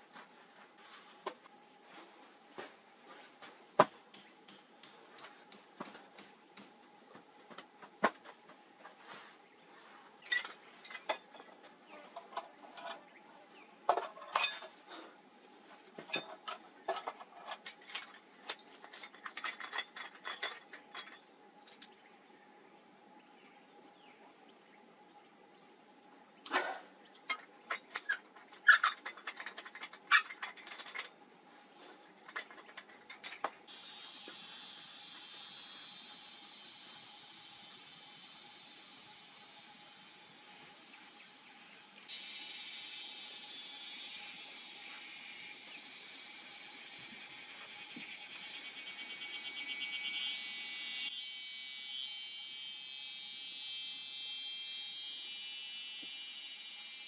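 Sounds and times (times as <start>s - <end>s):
insect drone: 0.0s - 57.0s
lantern and bottle clinking: 13.9s - 14.7s.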